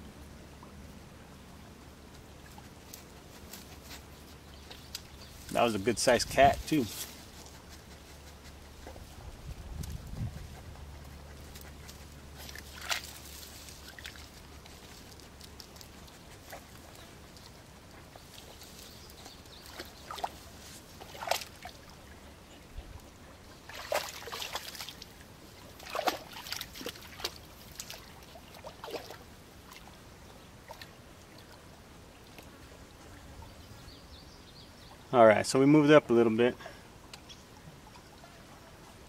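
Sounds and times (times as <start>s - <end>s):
water splashing and trickling: 11.9s - 33.1s.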